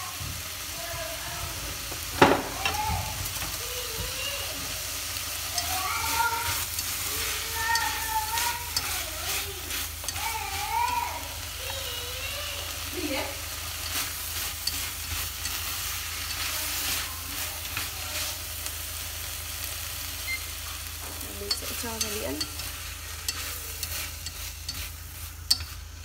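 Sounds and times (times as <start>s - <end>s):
food sizzling in a pot: 0.0s - 26.0s
chopsticks clicking against pot: 7.7s - 11.0s, 13.8s - 16.5s, 21.5s - 25.8s.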